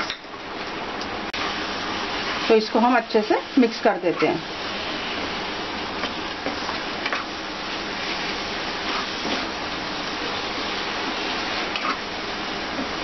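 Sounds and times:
meat sizzling in oil: 0:01.3 - 0:13.0
wooden spatula scraping pan: 0:08.0 - 0:09.6.

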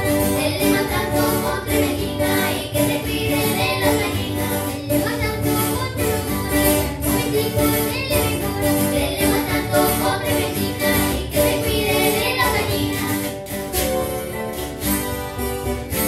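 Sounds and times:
children singing: 0:00.0 - 0:13.4
strummed acoustic guitars: 0:00.0 - 0:16.0.

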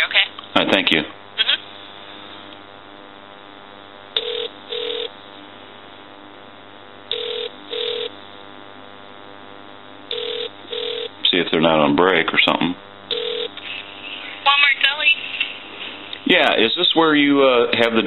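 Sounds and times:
steady line hum: 0:00.0 - 0:18.0
telephone ringback tones: 0:04.2 - 0:05.1, 0:07.1 - 0:08.1, 0:10.1 - 0:11.1, 0:13.1 - 0:13.5.

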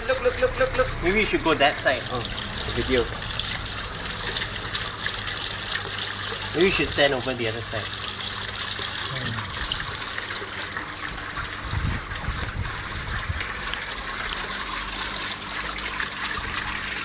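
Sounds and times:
fountain water splashing: 0:00.0 - 0:17.0.

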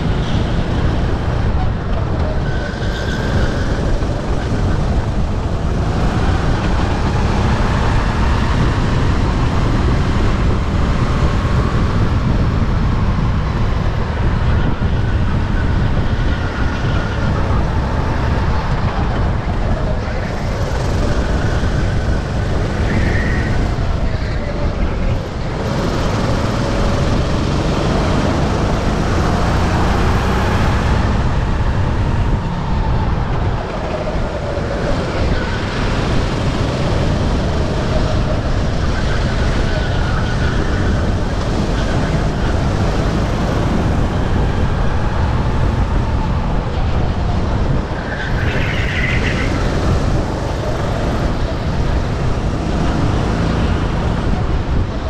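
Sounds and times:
heavy rushing noise: 0:00.0 - 0:55.0
kart engine revving: 0:00.0 - 0:55.0.

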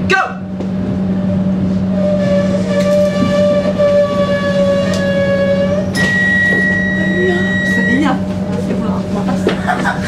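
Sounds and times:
train carriage hum: 0:00.0 - 0:10.0
loud horn blast: 0:01.9 - 0:07.9.

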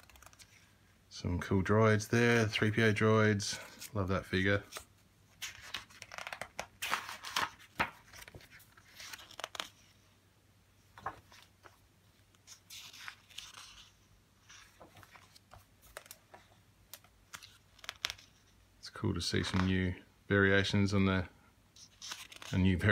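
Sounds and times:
book pages turning: 0:00.0 - 0:00.7, 0:03.6 - 0:10.0, 0:10.9 - 0:18.6, 0:19.2 - 0:19.9, 0:21.8 - 0:22.9.

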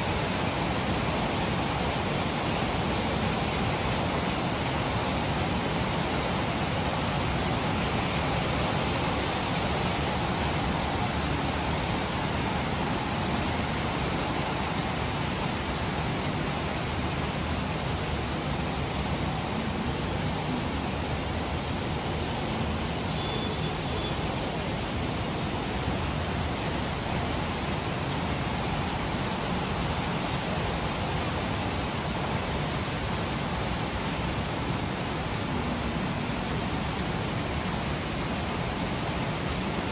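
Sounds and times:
rain falling steadily: 0:00.0 - 0:39.9.

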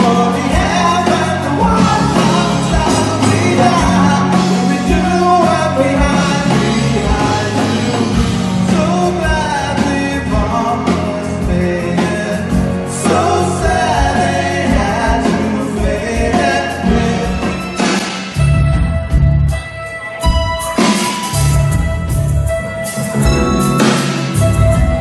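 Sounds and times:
person singing: 0:00.0 - 0:18.1
bass guitar: 0:00.0 - 0:25.0
drum kit beat: 0:00.0 - 0:25.0
electric guitars: 0:00.0 - 0:25.0.

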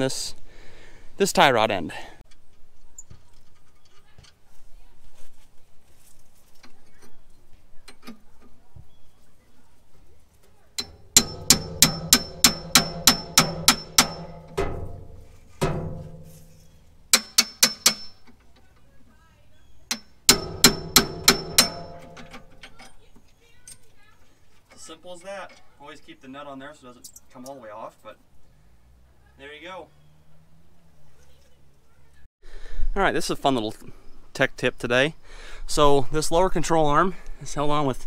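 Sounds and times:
hammer striking metal: 0:10.8 - 0:16.5, 0:17.1 - 0:18.4, 0:19.9 - 0:22.9.

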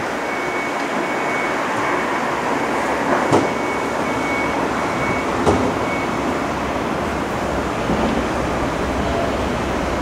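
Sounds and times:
rushing trackside noise: 0:00.0 - 0:10.0
high beeping tone: 0:03.4 - 0:06.2.

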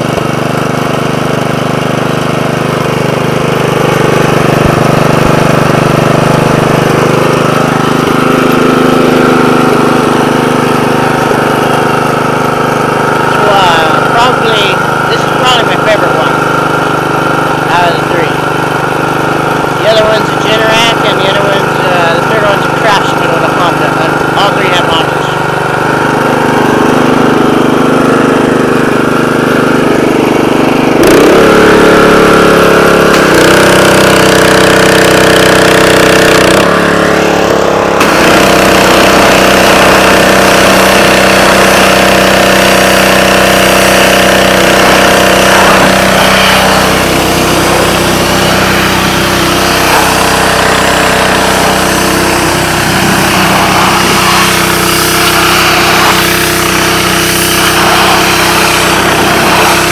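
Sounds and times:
small petrol engine running: 0:00.0 - 0:59.9
water jet hissing: 0:38.0 - 0:59.9.

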